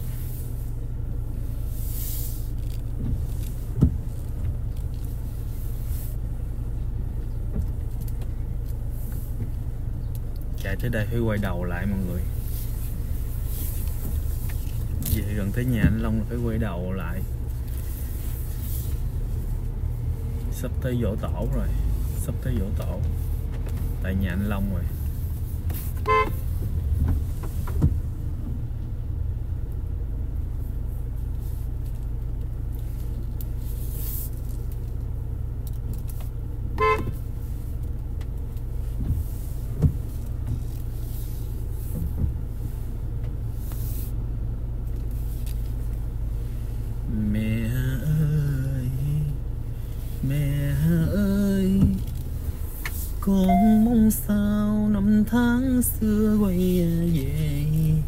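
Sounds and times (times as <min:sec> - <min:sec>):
car engine and road noise: 0:00.0 - 0:58.0
person singing: 0:53.4 - 0:54.1.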